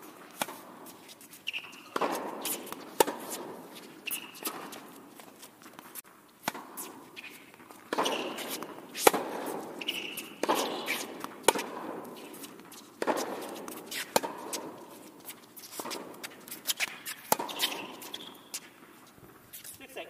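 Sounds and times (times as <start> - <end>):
footsteps on court: 0.0 - 19.9
racket striking tennis ball: 0.1 - 18.8
ball bouncing on court: 1.5 - 4.9, 7.6 - 14.8, 16.8 - 18.6.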